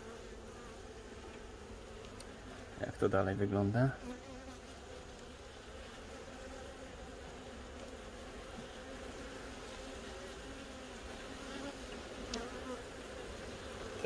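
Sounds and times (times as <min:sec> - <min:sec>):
honeybees buzzing: 0:00.0 - 0:14.0.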